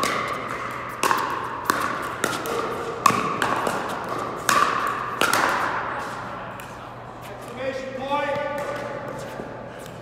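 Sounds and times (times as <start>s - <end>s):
paddles hitting plastic ball: 0.0s - 6.8s.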